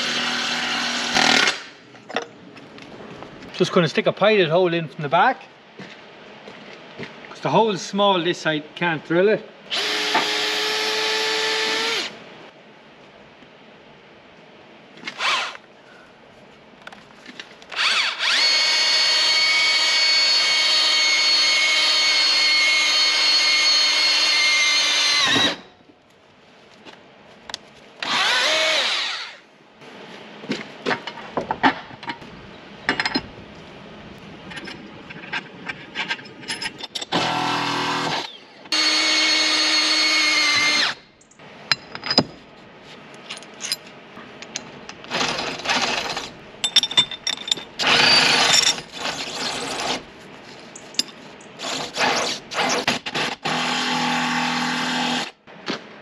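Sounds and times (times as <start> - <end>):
power drill boring: 17.8 - 25.6, 28.0 - 29.4, 37.2 - 41.0.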